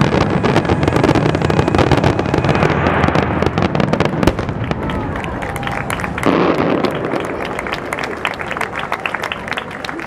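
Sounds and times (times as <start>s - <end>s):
sharp firework crack: 0.0s - 7.9s
fireworks crackling and banging: 0.0s - 10.0s.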